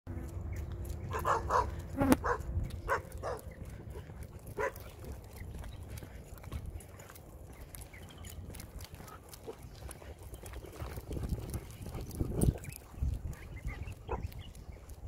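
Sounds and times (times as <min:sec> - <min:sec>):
dogs barking: 0:01.0 - 0:05.7, 0:11.4 - 0:14.7.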